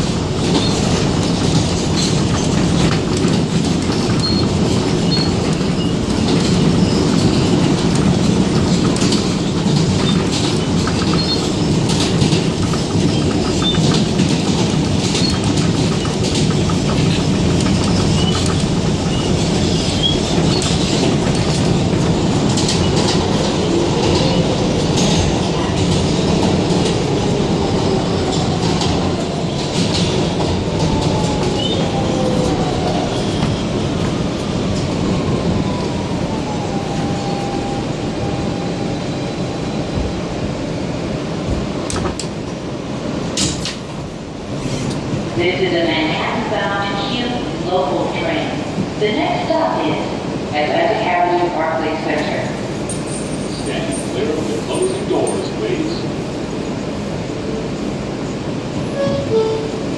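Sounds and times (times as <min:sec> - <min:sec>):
clickety-clack over rail joints: 0:00.0 - 0:35.8, 0:39.5 - 0:47.6
train wheels rumbling on rail: 0:00.0 - 0:59.9.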